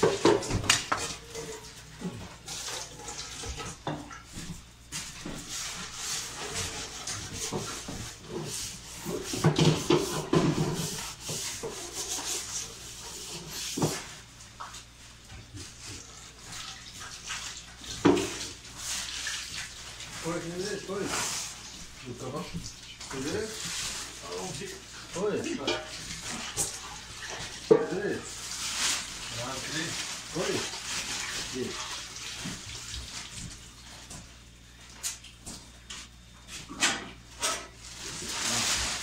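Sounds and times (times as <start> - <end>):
metal pans clattering: 25.5 - 28.0
food scraping into foil trays: 37.4 - 39.0.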